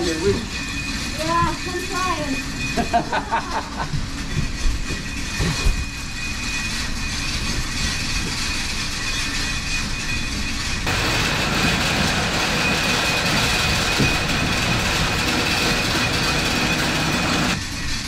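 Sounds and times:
high whine: 0.0s - 18.0s
farm machinery rumble: 10.8s - 17.6s.

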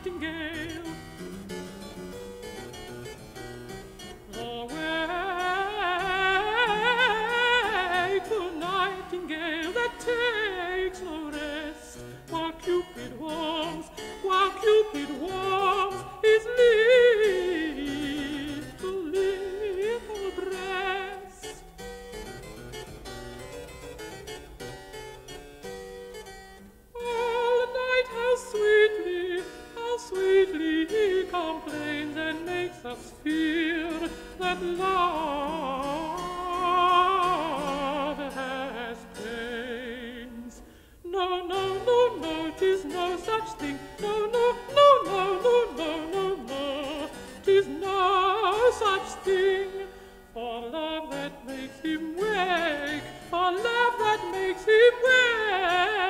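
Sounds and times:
countertenor singing with vibrato: 0.0s - 1.3s, 4.2s - 21.8s, 27.0s - 56.0s
harpsichord: 0.0s - 26.6s.

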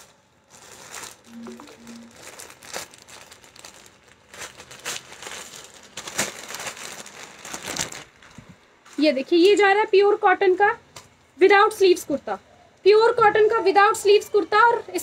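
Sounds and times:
plastic bags crinkling: 0.0s - 9.6s.

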